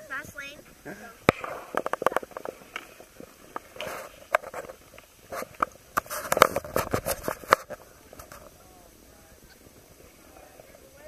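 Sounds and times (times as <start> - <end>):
skis scraping over snow: 1.4 - 8.5.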